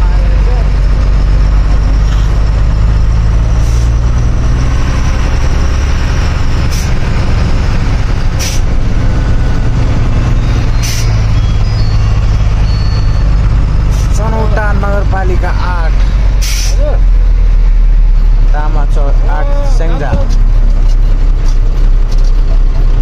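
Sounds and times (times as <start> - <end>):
truck diesel engine running: 0.0 - 23.0
air brake hisses: 8.4 - 8.6, 10.8 - 11.1, 16.4 - 16.8.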